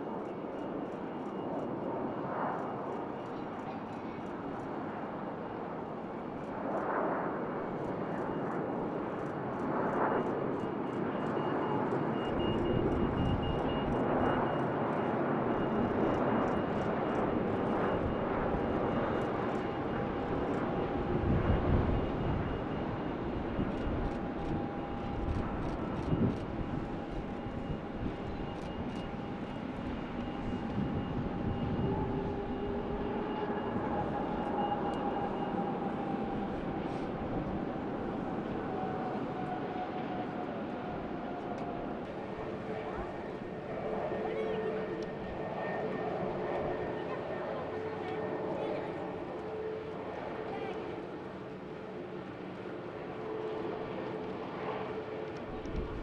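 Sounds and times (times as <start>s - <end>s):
jet engine roar with whine: 0.0s - 56.0s
wind on microphone: 19.8s - 39.6s, 55.4s - 56.0s.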